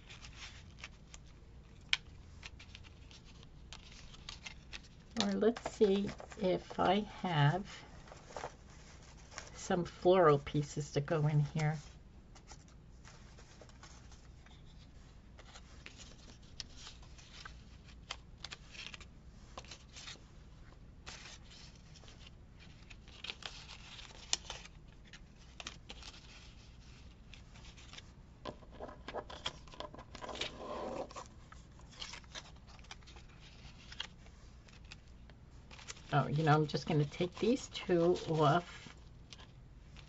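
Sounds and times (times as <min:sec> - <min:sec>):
paper rustling: 0:00.0 - 0:10.6, 0:11.4 - 0:40.0
paper scraping: 0:30.1 - 0:35.0.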